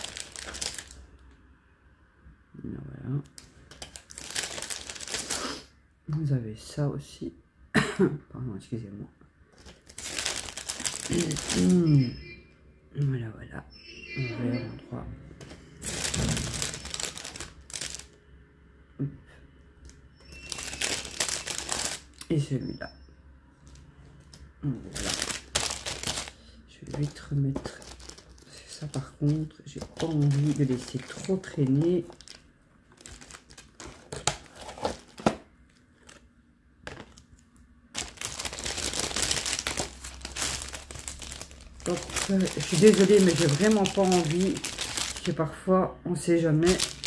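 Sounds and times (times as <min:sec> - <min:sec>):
plastic bag crinkling: 0:00.0 - 0:01.1, 0:03.3 - 0:05.4, 0:09.5 - 0:11.9, 0:15.8 - 0:18.2, 0:20.2 - 0:22.3, 0:24.6 - 0:36.2, 0:37.9 - 0:45.4, 0:46.5 - 0:47.0.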